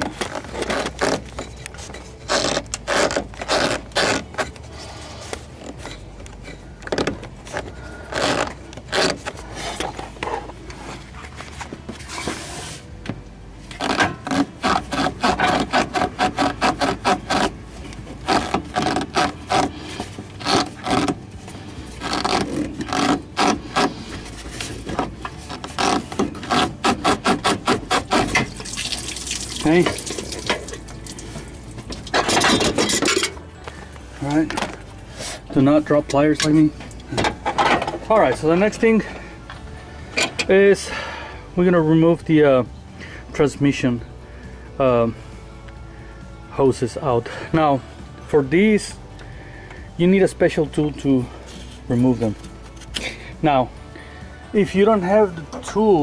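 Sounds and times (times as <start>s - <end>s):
rubber hose scraping and rubbing: 0.0s - 13.0s, 13.6s - 39.3s, 50.4s - 53.6s.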